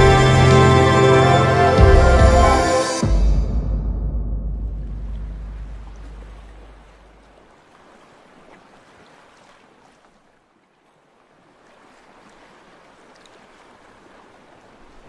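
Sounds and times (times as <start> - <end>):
music bass: 0.0 - 6.9
gentle sea waves: 4.8 - 15.0.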